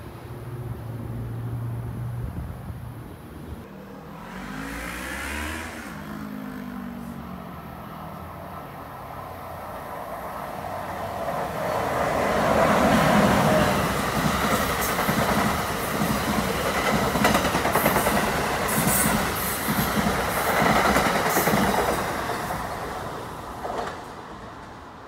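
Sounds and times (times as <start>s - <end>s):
train passing at speed: 0.0s - 25.0s
wheels clacking on rails: 10.1s - 25.0s.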